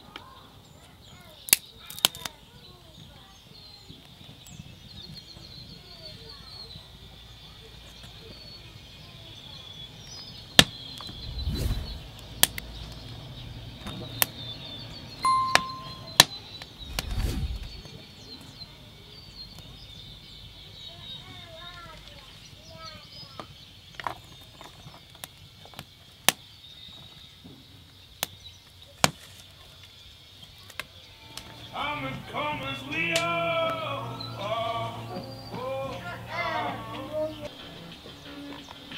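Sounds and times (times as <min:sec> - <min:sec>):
wood snapping: 0:01.5 - 0:02.3
short beep-like tone: 0:15.2 - 0:16.2
faint steady high tone: 0:15.2 - 0:16.5
campfire crackling and popping: 0:23.4 - 0:31.5.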